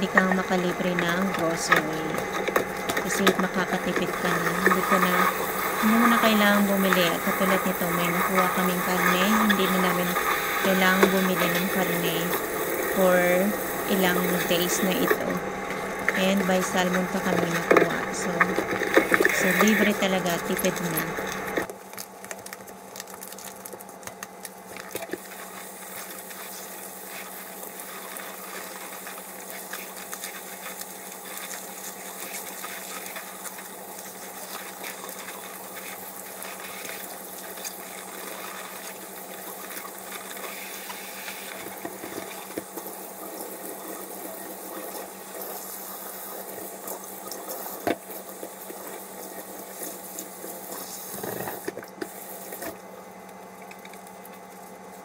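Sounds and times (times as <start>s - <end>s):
sponge scrubbing plastic packages: 16.1s - 52.8s.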